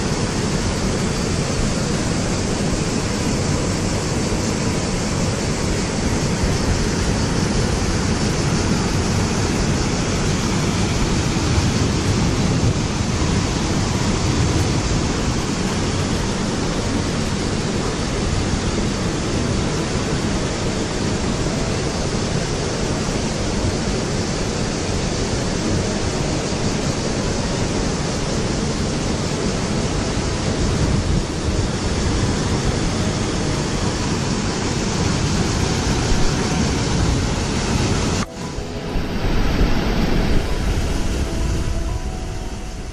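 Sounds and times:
river rushing over rapids: 0.0 - 42.9.

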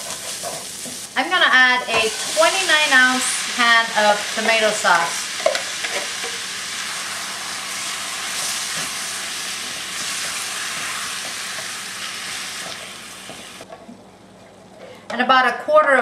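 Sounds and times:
spatula stirring in a skillet: 0.0 - 1.2, 1.9 - 13.6
tomato sauce sizzling in a skillet: 0.0 - 13.6.

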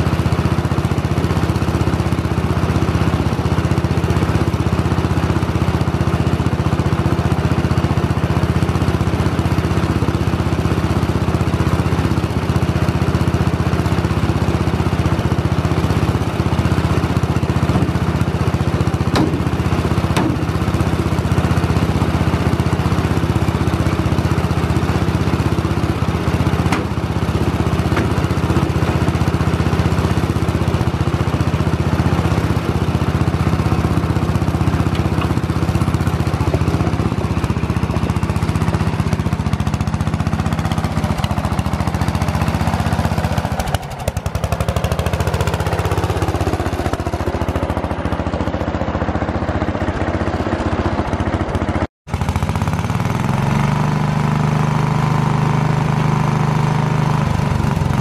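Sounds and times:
garden tractor engine running: 0.0 - 58.0.

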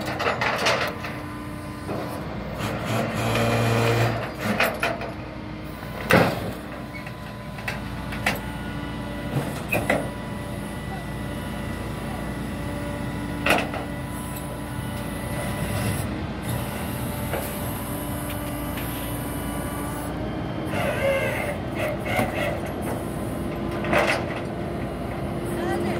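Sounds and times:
truck engine running: 0.0 - 25.9.

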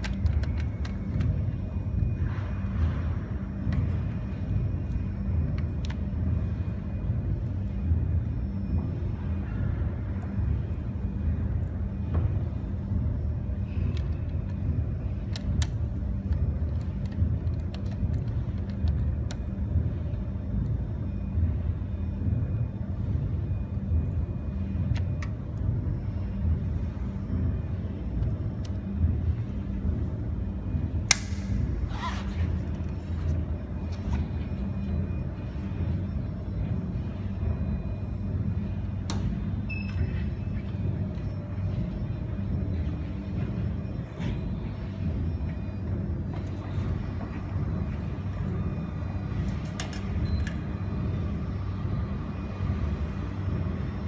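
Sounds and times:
steady low rumble: 0.0 - 54.0.

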